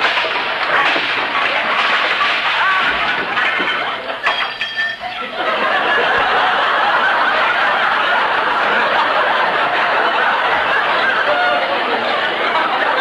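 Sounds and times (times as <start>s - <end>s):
crash of junk: 0.0s - 6.7s
sharp metallic clink: 4.2s - 5.2s
audience laughing: 5.0s - 13.0s.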